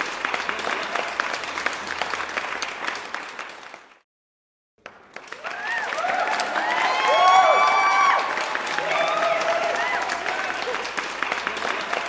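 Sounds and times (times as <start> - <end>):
crowd applauding: 0.0 - 4.0, 4.8 - 12.0
voices cheering: 5.4 - 12.0.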